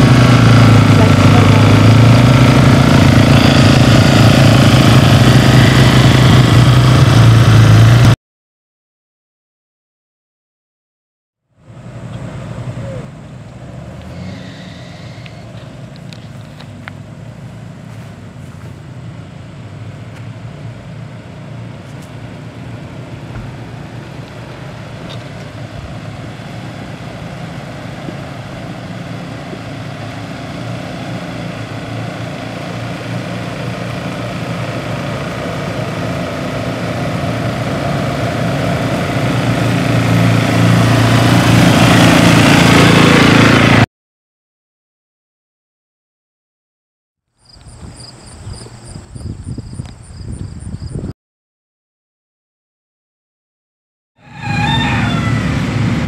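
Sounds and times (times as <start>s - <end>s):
car engine running: 0.0s - 8.2s, 11.6s - 43.8s, 47.4s - 51.0s.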